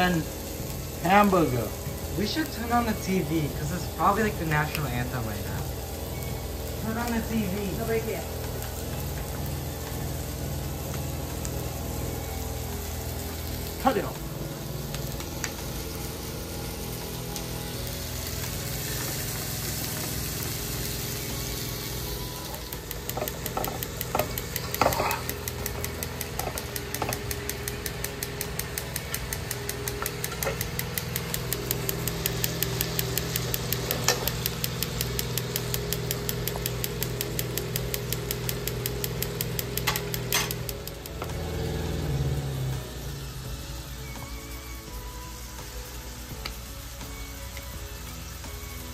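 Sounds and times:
patties frying in a skillet: 0:00.0 - 0:48.9
steady mechanical hum: 0:00.0 - 0:48.9
fast even ticking: 0:22.7 - 0:41.2.

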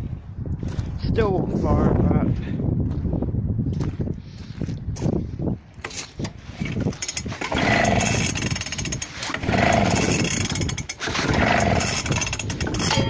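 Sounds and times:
petrol engine cranking: 0:05.8 - 0:13.0.

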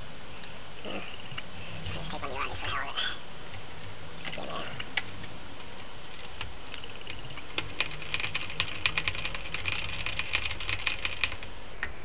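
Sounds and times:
plastic keyboard keys clicking: 0:06.1 - 0:11.5.

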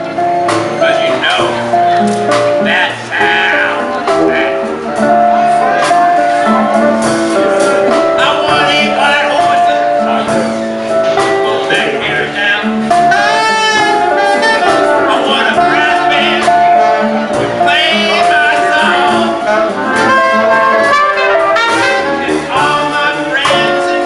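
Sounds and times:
alto saxophone melody: 0:00.0 - 0:24.0
drum and cymbal beat: 0:04.1 - 0:12.0, 0:12.8 - 0:24.0
low-pitched saxophone: 0:11.9 - 0:22.9.

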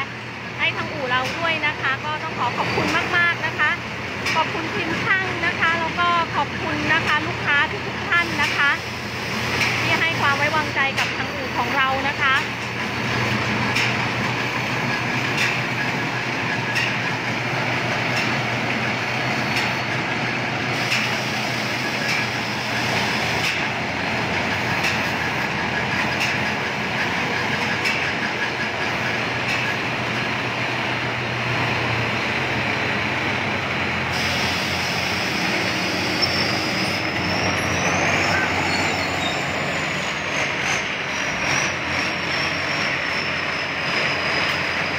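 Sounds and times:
diesel engine running: 0:00.0 - 0:44.9
crawler tracks clattering: 0:09.4 - 0:21.2, 0:21.8 - 0:34.0.

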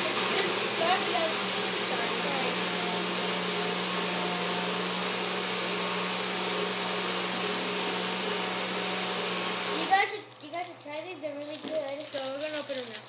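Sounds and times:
motor appliance humming: 0:00.0 - 0:10.1.

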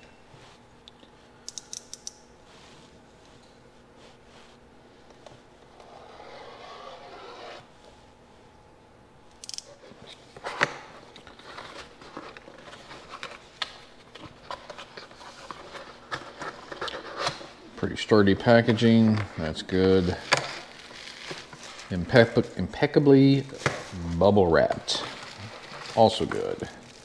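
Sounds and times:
cardboard and plastic crackles: 0:23.5 - 0:27.0.

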